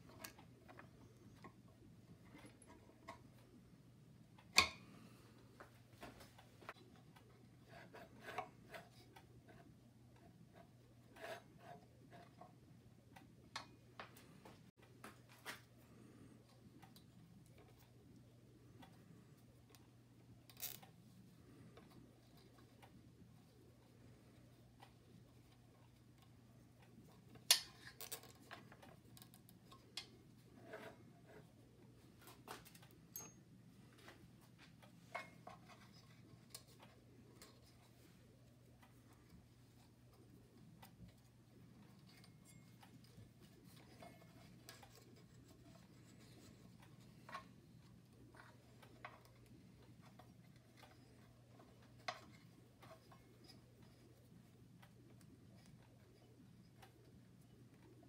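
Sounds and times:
low steady hum: 0.0 - 58.0
clicks and knocks of belt fitting: 23.6 - 31.4.

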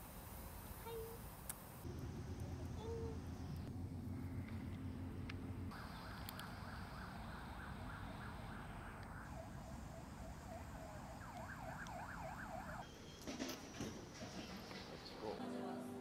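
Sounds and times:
emergency vehicle siren: 5.7 - 13.1.

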